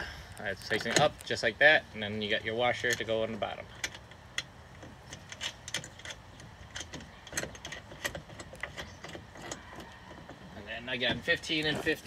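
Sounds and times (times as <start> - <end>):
metallic clicks of washer and nut: 2.8 - 9.8.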